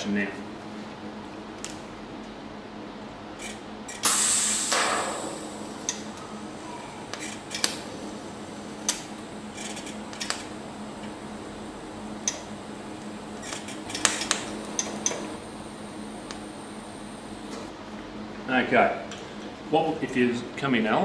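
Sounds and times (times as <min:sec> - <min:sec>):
steady low hum: 0:00.0 - 0:21.0
loud burst of noise: 0:04.0 - 0:06.7.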